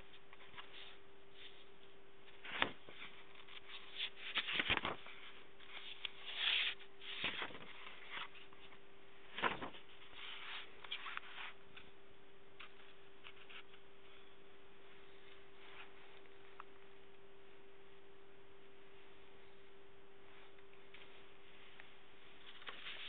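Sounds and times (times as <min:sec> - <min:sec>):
paper pages rustling: 0:00.0 - 0:12.0, 0:12.6 - 0:14.2, 0:20.4 - 0:23.0
faint steady hum: 0:00.0 - 0:23.0.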